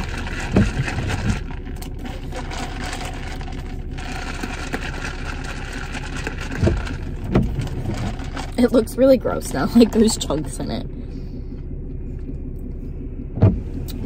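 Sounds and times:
straw stirring iced drink in plastic cup: 0.0s - 8.9s.

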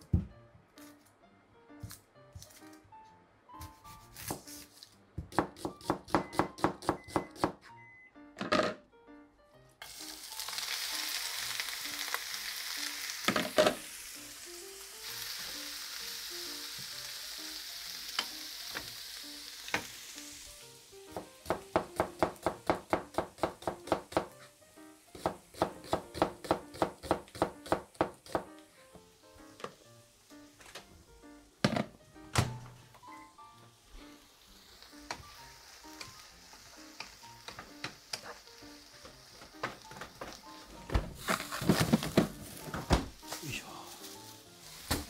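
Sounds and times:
onions sizzling in oil: 9.8s - 30.6s, 33.2s - 45.0s.

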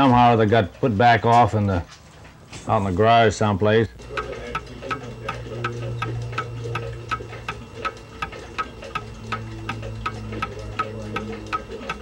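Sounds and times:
clock ticking: 3.9s - 12.0s.

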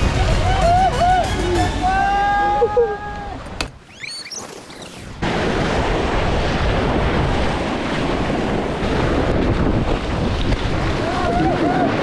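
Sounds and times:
surf foaming against rocks: 4.4s - 12.0s
wind noise on microphone: 5.1s - 12.0s.

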